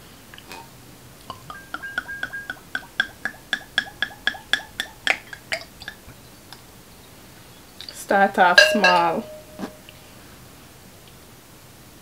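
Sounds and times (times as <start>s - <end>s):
liquid glugging from glass bottle: 1.3s - 6.1s.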